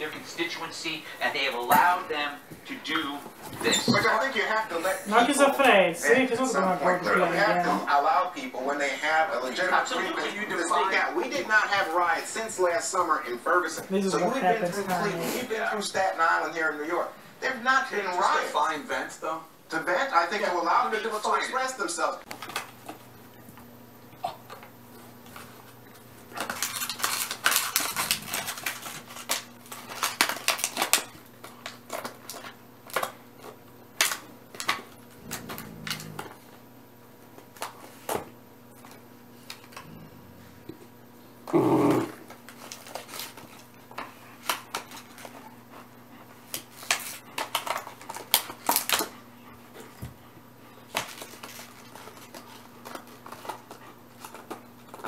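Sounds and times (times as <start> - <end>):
dogs chewing toys: 0.0 - 17.2, 19.9 - 55.0
plastic bottle crackling and crunching: 26.3 - 32.1.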